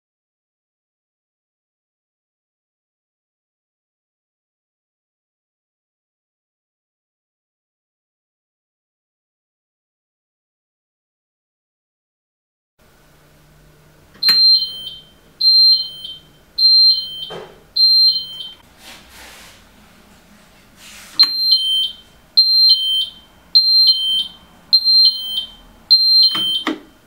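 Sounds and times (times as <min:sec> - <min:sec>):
two-tone alarm siren pulses: 0:14.2 - 0:18.6, 0:21.2 - 0:26.8.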